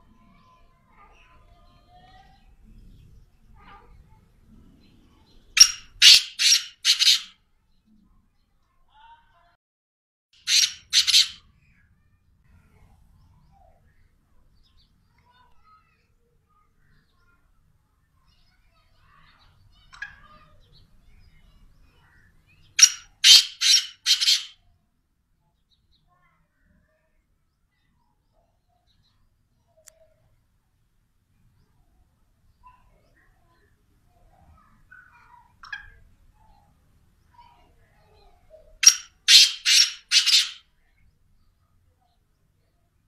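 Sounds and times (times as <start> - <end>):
bird chirp: 0.0 - 8.7, 10.4 - 24.6, 32.5 - 43.0
harsh rasping bird calls: 5.6 - 7.4, 10.4 - 11.8, 21.2 - 24.6, 34.3 - 36.6, 38.2 - 40.6.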